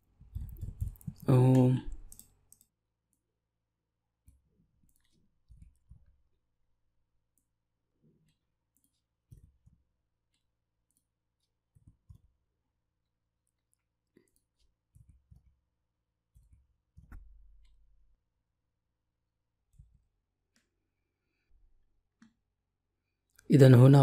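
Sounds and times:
faint keyboard keystrokes: 0.3s - 2.7s.

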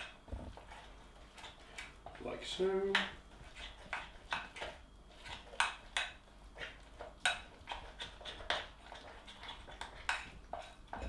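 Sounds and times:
spoon scraping a bowl: 3.3s - 6.0s, 6.6s - 10.9s.

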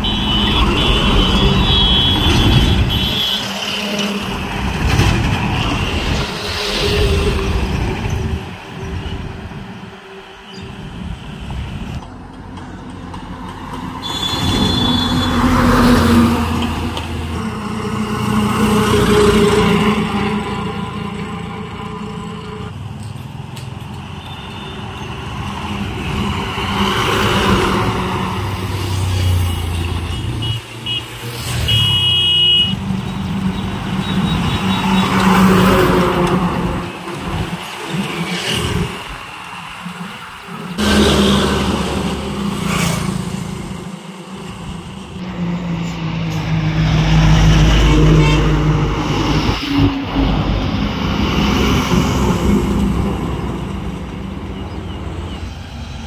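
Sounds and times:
trucks driving past: 0.0s - 56.0s
vehicles passing on a road: 0.0s - 56.0s
high-pitched horn toot: 14.0s - 16.2s, 30.1s - 32.8s, 47.5s - 50.4s.

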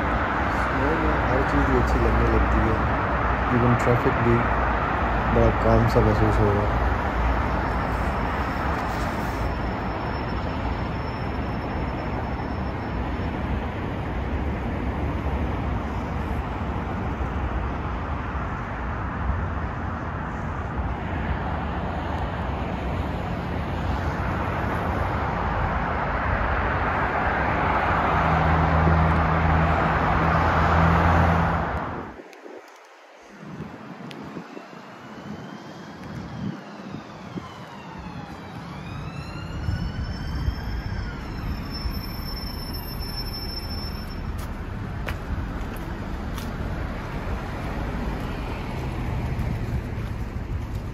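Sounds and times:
passing cars rushing: 0.0s - 50.9s
vehicle engine humming close by: 44.0s - 50.9s.

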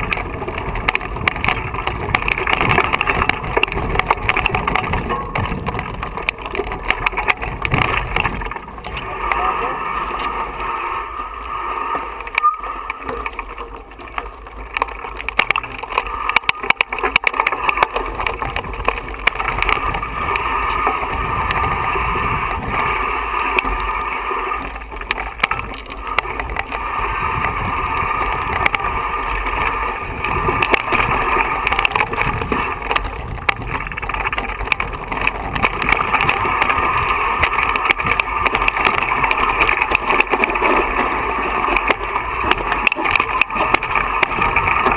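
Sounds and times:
bike rattling over stones: 0.0s - 44.9s
bike tyres rushing over gravel: 0.0s - 44.9s.

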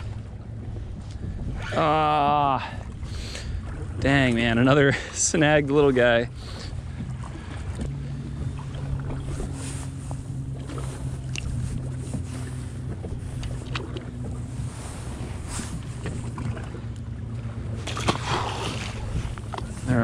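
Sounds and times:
steady low hum: 0.0s - 20.0s
wind buffeting microphone: 0.0s - 20.0s
fish splashing into water: 17.7s - 19.6s.

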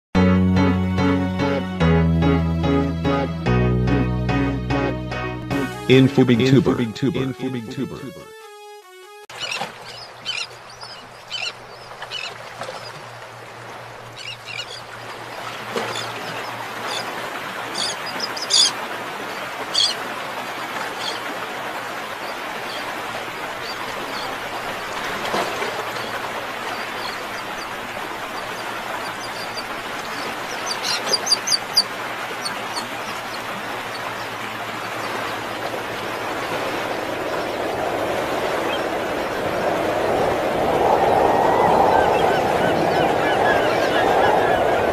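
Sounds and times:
birds calling: 9.3s - 13.1s, 14.0s - 20.0s, 20.6s - 21.4s, 22.0s - 39.5s, 41.5s - 44.9s
steady rushing noise: 25.8s - 44.9s.

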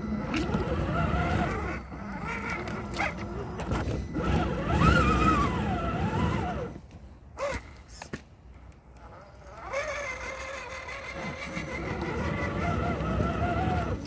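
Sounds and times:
electric motor whining: 0.0s - 6.8s, 8.9s - 14.0s
tyres rumbling on dirt: 0.0s - 6.8s, 9.6s - 14.0s.

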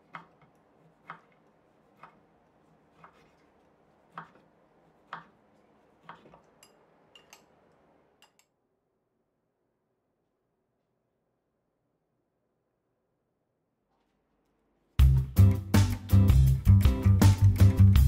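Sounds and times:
knife knocking on wooden board: 4.1s - 4.5s.

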